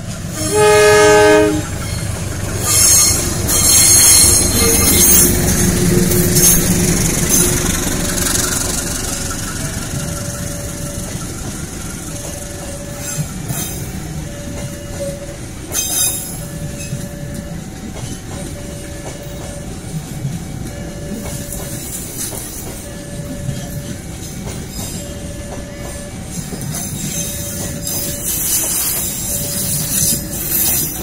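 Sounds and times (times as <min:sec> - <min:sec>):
rail joint clacks: 0:00.0 - 0:31.0
train wheels rumbling on rails: 0:00.0 - 0:31.0.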